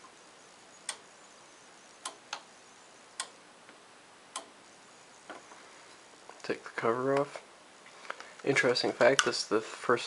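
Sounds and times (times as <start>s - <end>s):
thermostat switch clicking: 2.0s - 2.5s, 3.2s - 3.4s, 4.3s - 4.5s.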